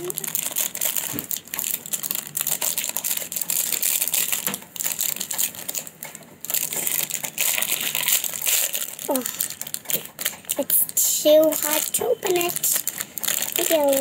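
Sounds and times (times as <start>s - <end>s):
plastic wrapper crinkling: 0.0s - 14.0s.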